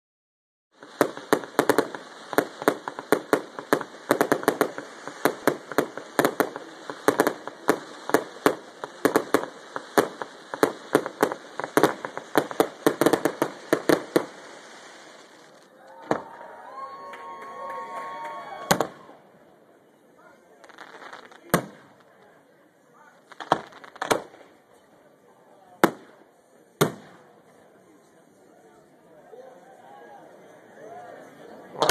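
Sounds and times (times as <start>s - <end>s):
fireworks bangs and pops: 0.8s - 16.4s, 18.7s - 19.1s, 20.6s - 22.4s, 23.2s - 24.9s, 25.8s - 27.4s.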